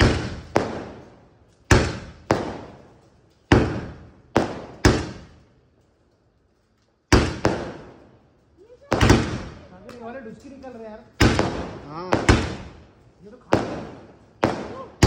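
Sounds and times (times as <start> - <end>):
firework bangs echoing: 0.0 - 5.6, 7.1 - 15.0.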